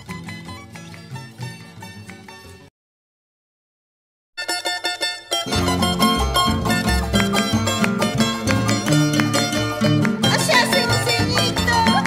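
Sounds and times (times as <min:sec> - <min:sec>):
plucked charango notes: 0:00.0 - 0:02.7, 0:04.4 - 0:12.0
bass line: 0:05.4 - 0:12.0.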